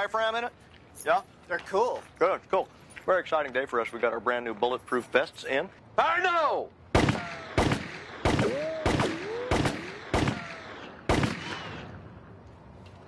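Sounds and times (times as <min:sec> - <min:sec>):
pistol shots with echo: 0:06.9 - 0:12.0.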